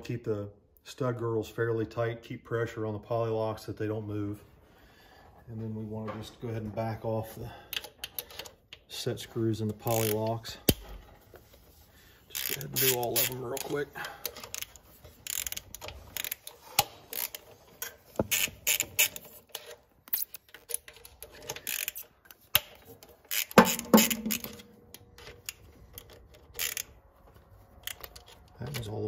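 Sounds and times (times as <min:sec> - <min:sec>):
hand tools clicking on metal: 0:12.3 - 0:26.9.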